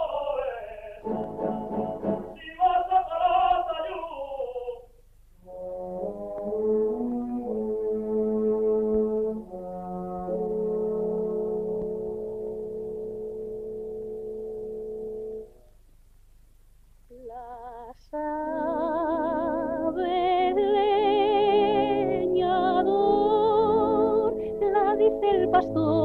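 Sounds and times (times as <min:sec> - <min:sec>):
orchestra playing: 0:01.0 - 0:02.4
orchestral chord with brass: 0:01.0 - 0:02.4
woman singing with vibrato: 0:17.1 - 0:26.0.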